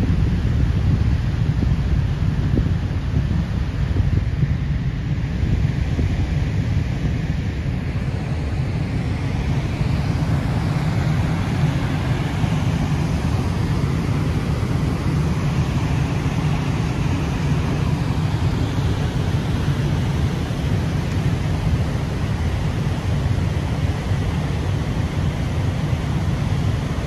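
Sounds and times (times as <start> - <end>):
floodwater rushing: 8.4 - 27.0.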